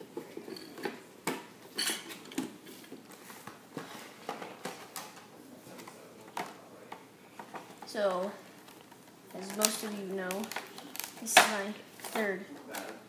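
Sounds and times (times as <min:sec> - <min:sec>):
crackling rustle: 0:07.7 - 0:11.3
plastic packaging crinkling: 0:08.5 - 0:11.3.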